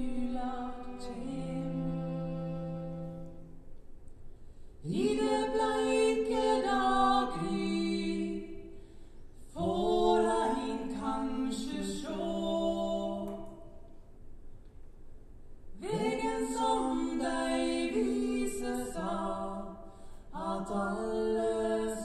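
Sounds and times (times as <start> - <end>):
man and woman singing duet: 0.0 - 3.3, 4.8 - 8.6, 9.6 - 13.7, 15.8 - 22.0.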